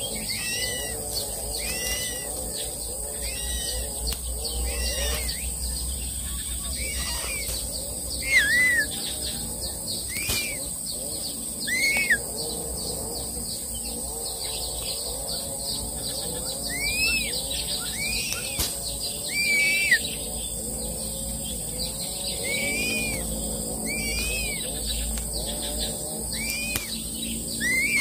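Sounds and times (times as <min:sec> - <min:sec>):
eagle whistled calls: 0:00.0 - 0:01.0, 0:03.2 - 0:03.9, 0:04.7 - 0:05.5, 0:06.2 - 0:07.6, 0:08.2 - 0:09.1, 0:10.1 - 0:10.7, 0:11.6 - 0:12.2, 0:16.5 - 0:20.2, 0:22.3 - 0:25.0, 0:26.3 - 0:28.0
high insect whine: 0:00.0 - 0:28.0
small birds chirping: 0:00.0 - 0:28.0.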